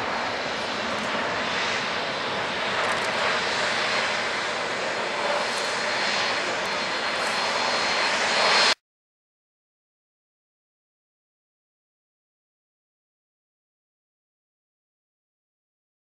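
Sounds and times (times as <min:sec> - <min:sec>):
faint high whine: 0:00.0 - 0:08.8
jet engines rushing: 0:00.0 - 0:08.8.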